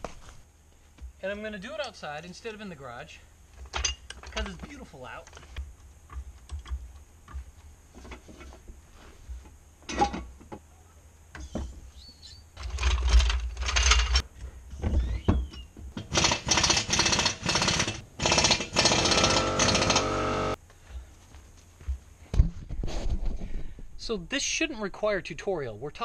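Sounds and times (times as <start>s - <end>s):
metal jack clattering: 12.6s - 14.2s
loud fast rattling: 16.0s - 20.6s.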